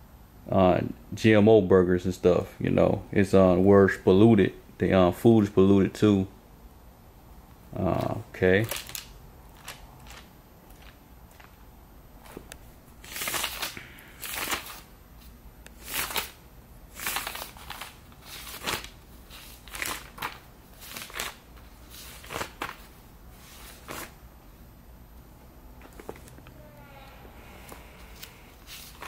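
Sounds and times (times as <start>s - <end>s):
paper pages rustling: 8.0s - 11.6s, 12.2s - 24.2s, 25.8s - 26.5s, 27.6s - 29.0s.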